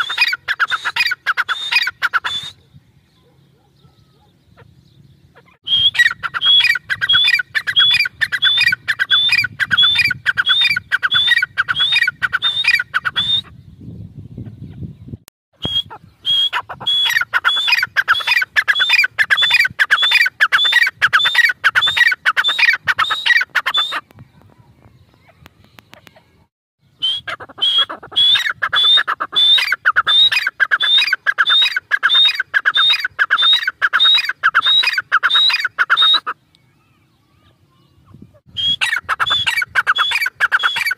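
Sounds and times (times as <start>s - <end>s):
francolin calling: 5.3s - 13.5s, 26.9s - 36.4s, 37.8s - 40.9s.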